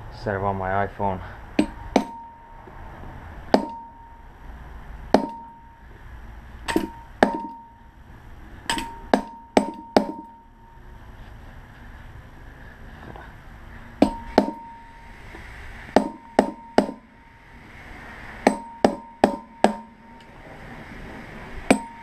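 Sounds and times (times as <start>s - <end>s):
hammer striking steel punch: 1.6s - 2.6s, 3.5s - 4.2s, 5.1s - 5.7s, 6.6s - 7.8s, 8.7s - 10.5s, 14.0s - 15.0s, 15.9s - 17.1s, 18.4s - 20.3s, 21.7s - 22.0s.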